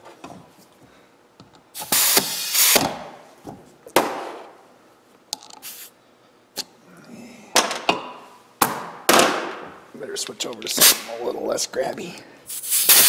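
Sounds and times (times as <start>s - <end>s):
compressed air hissing: 1.8s - 2.8s, 5.6s - 6.0s, 12.5s - 13.0s.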